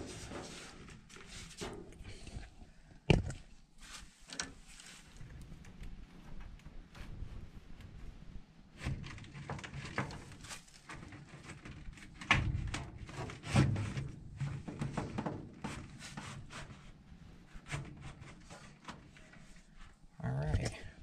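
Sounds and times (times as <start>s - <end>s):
filter knocking and scraping in metal cabinet: 0.0s - 2.5s, 8.7s - 19.9s.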